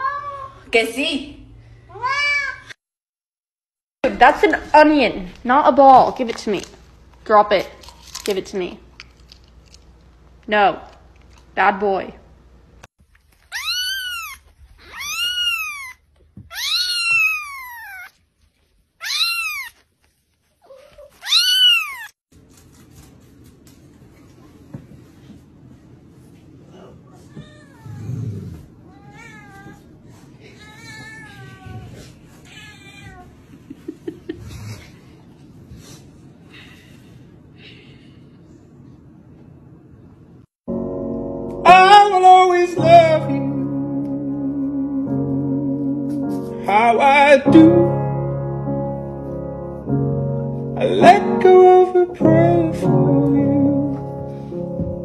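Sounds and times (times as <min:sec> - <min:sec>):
kitten meowing: 0:13.5 - 0:18.1, 0:19.0 - 0:19.8, 0:21.2 - 0:22.1.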